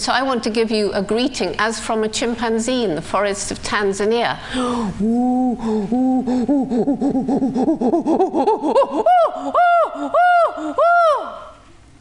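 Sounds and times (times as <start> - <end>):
woman imitating chimpanzee calls: 5.0 - 11.6.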